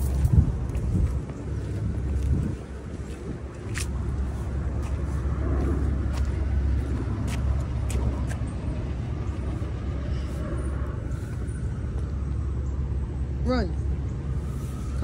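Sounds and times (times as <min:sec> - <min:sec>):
city street rumble: 0:00.0 - 0:15.0.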